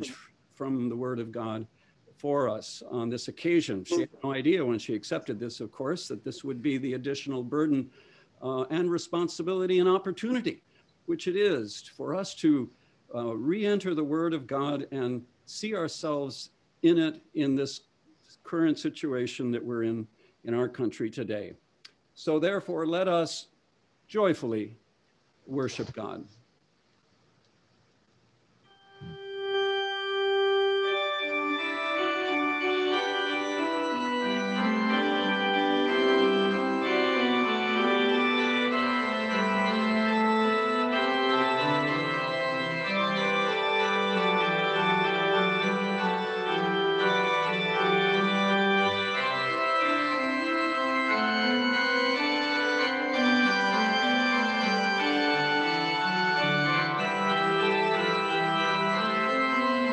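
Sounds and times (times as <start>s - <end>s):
pipe organ playing held chords: 28.7s - 59.9s.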